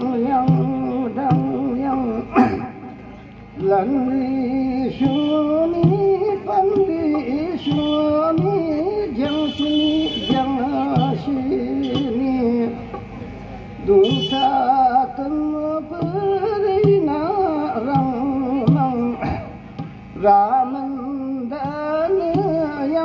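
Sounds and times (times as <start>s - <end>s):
man singing into a microphone: 0.0s - 2.8s, 3.5s - 13.2s, 13.8s - 23.0s.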